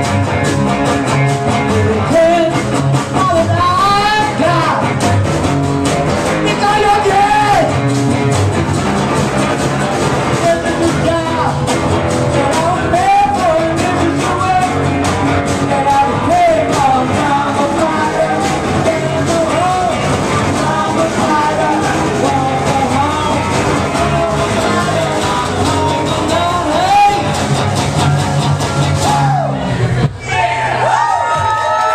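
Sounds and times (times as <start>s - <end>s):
acoustic guitar strumming: 0.0s - 30.2s
steady drum beat: 0.0s - 30.2s
electric guitar: 0.0s - 31.9s
man singing into a microphone: 1.5s - 5.0s, 6.4s - 7.8s, 10.4s - 11.7s, 12.3s - 27.5s.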